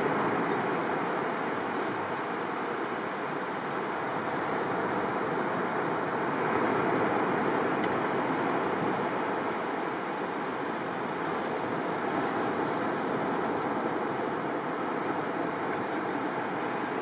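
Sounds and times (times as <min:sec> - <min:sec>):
waves breaking on a beach: 0:00.0 - 0:17.0.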